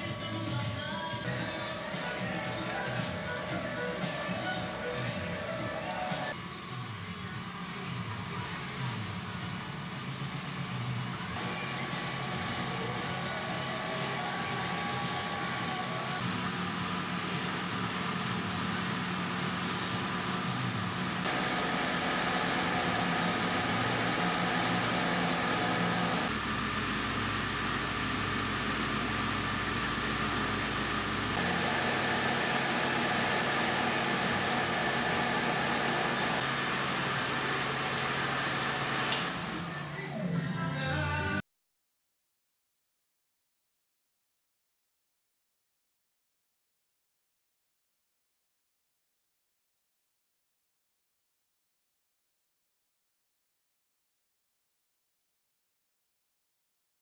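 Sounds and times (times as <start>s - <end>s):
lathe motor humming and whining: 0.0s - 40.3s.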